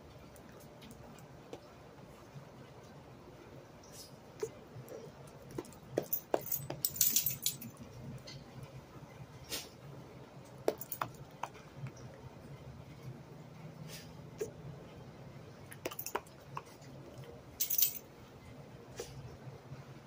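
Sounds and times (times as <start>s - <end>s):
collar tag jingling: 5.6s - 7.9s, 10.7s - 11.2s, 17.6s - 18.0s.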